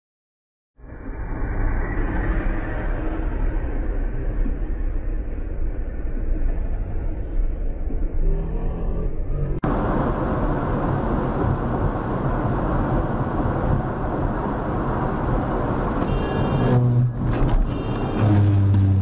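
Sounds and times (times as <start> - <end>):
car engine: 7.9 - 19.0
wind noise: 9.2 - 19.0
tyre noise: 15.6 - 19.0.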